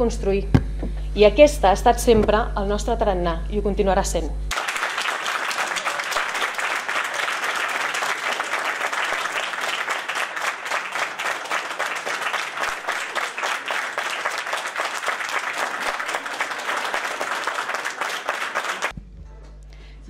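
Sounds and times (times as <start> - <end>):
audience applause: 4.5 - 18.9.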